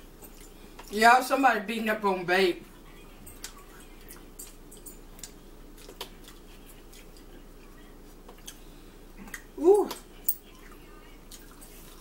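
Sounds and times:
chewing clicks and smacks: 0:03.3 - 0:07.4.

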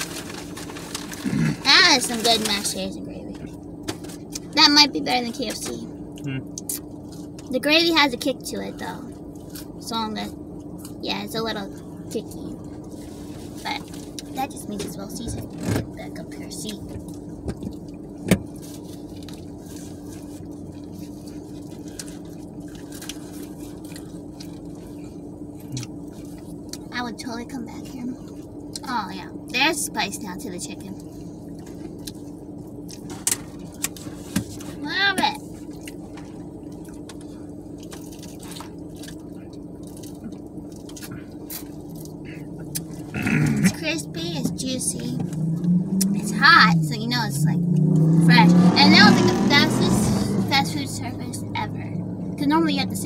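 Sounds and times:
people chewing food: 0:00.0 - 0:02.2, 0:18.7 - 0:26.9, 0:35.6 - 0:43.8
paper wrapper crinkling: 0:00.0 - 0:02.7
low hum inside a car: 0:00.0 - 0:53.0.

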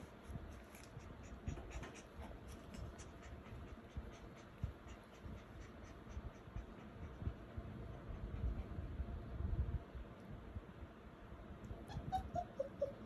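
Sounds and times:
puppies scratching and rustling: 0:00.0 - 0:07.0.

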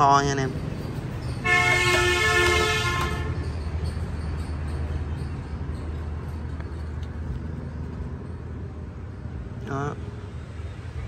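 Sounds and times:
road traffic rumble: 0:00.0 - 0:11.0
vehicle horn blaring: 0:01.4 - 0:03.4.

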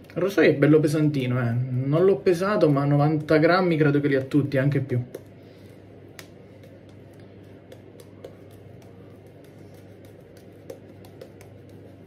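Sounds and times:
shaving brush squishing lather: 0:04.1 - 0:12.0.

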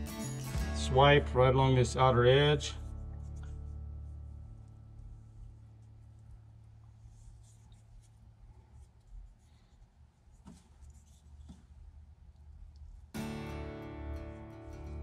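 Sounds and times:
acoustic guitar music: 0:00.0 - 0:04.1, 0:13.2 - 0:15.0
low steady hum: 0:00.6 - 0:15.0
paintbrush scratchy strokes: 0:02.2 - 0:13.1.

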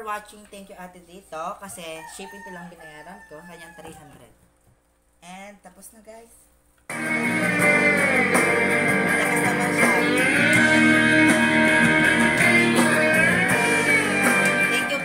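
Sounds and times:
guitar music with gliding lead: 0:06.9 - 0:15.0.

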